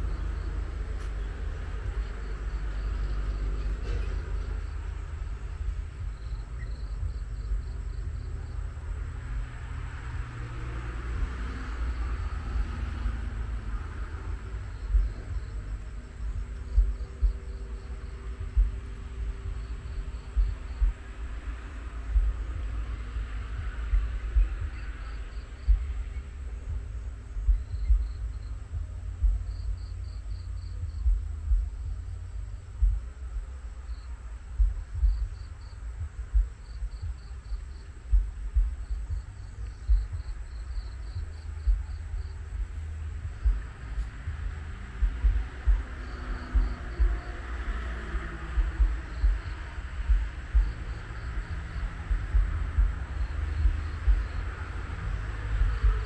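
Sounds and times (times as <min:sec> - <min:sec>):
crickets chirping: 0:00.0 - 0:56.0
steady low rumble: 0:00.0 - 0:56.0
wind on microphone: 0:00.0 - 0:56.0.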